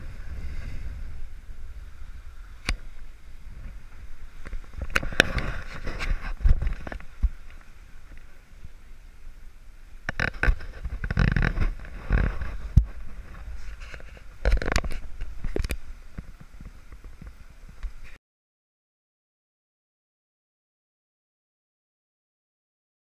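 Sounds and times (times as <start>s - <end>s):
sea rushing along hull: 0.0s - 18.2s
wind buffeting microphone: 0.0s - 18.2s.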